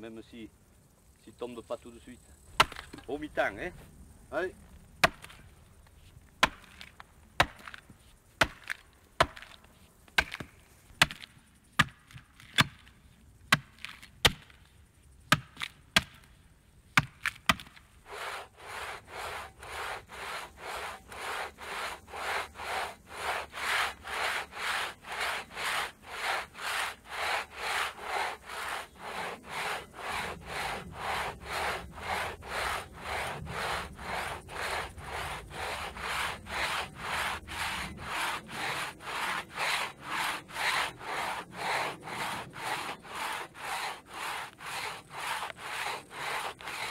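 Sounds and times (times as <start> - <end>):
axe chopping tree trunk: 2.6 - 3.0, 5.0 - 5.4, 6.4 - 7.8, 8.4 - 9.6, 10.2 - 12.9, 13.5 - 14.6, 15.3 - 16.3, 17.0 - 17.8
crosscut saw rasping: 18.1 - 46.9.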